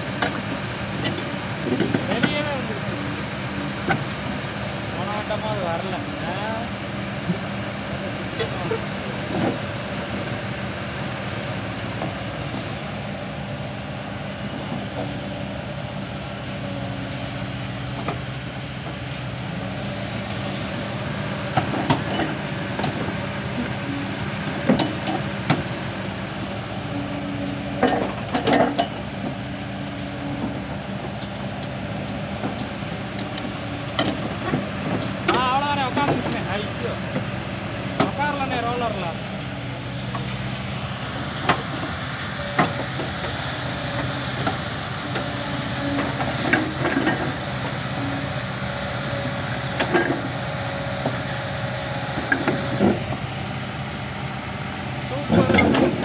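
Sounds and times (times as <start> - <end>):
excavator diesel engine running: 0.0 - 56.0
metal clanks and knocks: 24.4 - 25.7, 27.8 - 29.4, 55.3 - 56.0.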